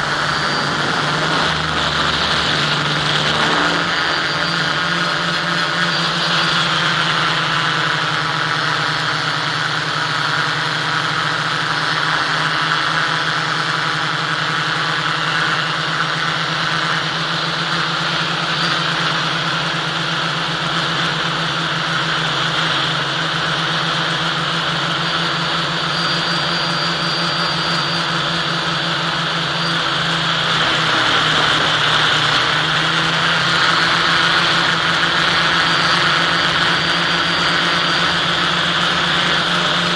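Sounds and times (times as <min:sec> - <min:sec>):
rushing air: 0:00.0 - 0:05.9
model aircraft motor whining: 0:00.0 - 0:39.9.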